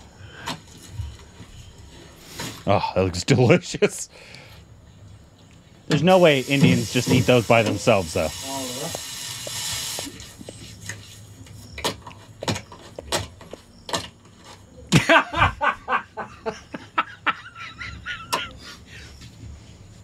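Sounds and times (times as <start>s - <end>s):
men laughing: 14.9s - 19.3s.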